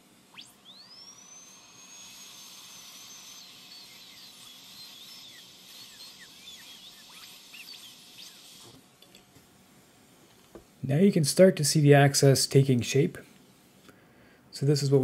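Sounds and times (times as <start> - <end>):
dental drill whining: 0.0 - 9.0
hiss: 0.3 - 8.9.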